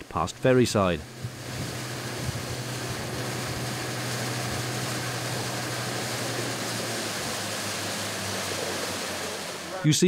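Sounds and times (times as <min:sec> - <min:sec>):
boat engine droning: 0:00.0 - 0:10.0
hiss of water and wind: 0:00.0 - 0:10.0.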